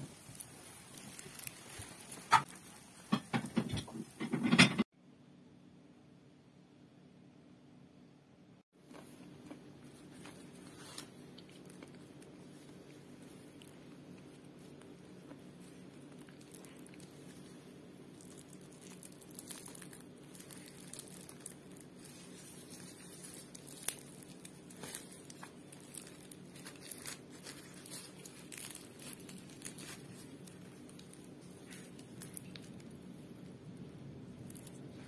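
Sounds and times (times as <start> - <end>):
faint low hum: 5.0 - 35.0
flatbread crackling as torn: 18.1 - 33.2.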